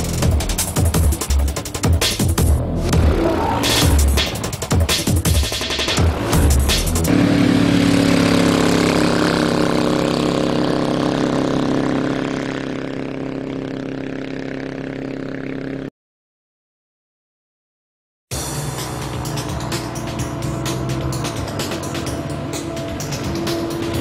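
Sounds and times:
hovercraft engine and fan humming: 0:07.1 - 0:15.9, 0:18.6 - 0:24.0.

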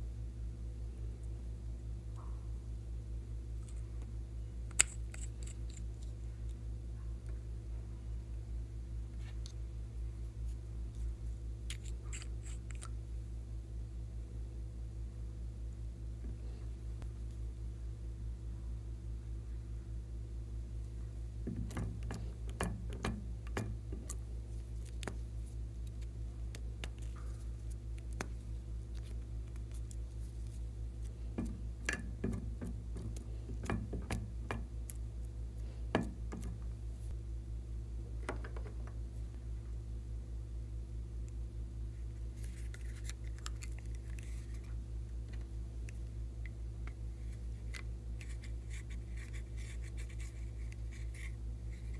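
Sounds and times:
steady low hum: 0:00.0 - 0:51.9
soft scratchy rustle: 0:26.9 - 0:31.2, 0:41.9 - 0:45.4.

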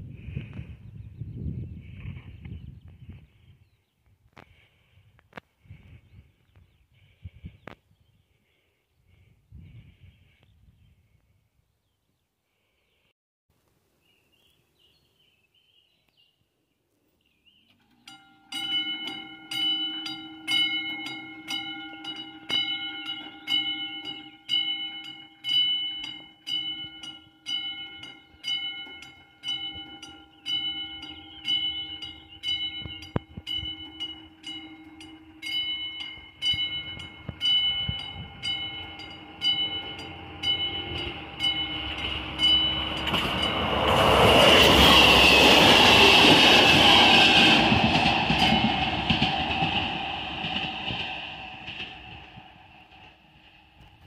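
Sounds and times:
approaching train: 0:17.6 - 0:54.0
level crossing bell ringing: 0:17.9 - 0:45.0.

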